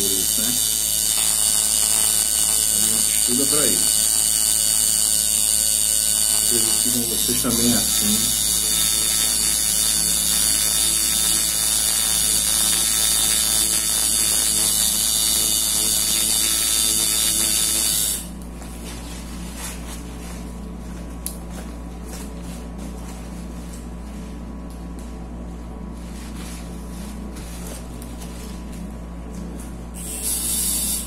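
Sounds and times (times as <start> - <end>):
tattoo machine buzzing: 0.0 - 18.4, 29.9 - 31.0.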